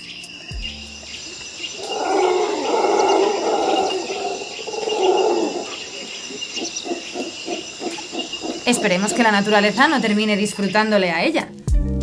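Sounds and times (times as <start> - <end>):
large animal growling: 1.8 - 9.5.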